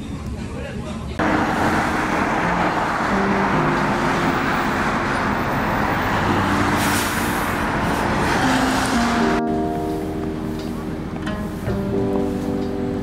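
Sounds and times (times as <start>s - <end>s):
city road traffic: 1.0s - 13.0s
cars passing close by: 1.2s - 13.0s.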